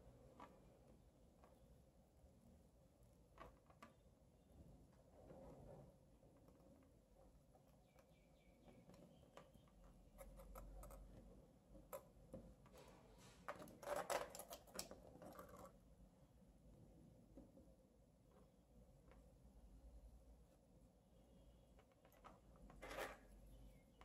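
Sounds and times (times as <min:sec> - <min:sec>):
soft clicks and scratches of wires: 0:03.0 - 0:15.8, 0:21.6 - 0:24.0.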